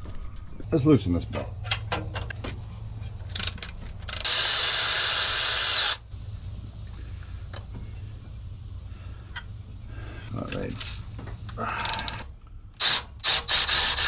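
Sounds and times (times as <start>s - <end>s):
power tool whining: 3.3s - 6.1s, 11.8s - 14.0s.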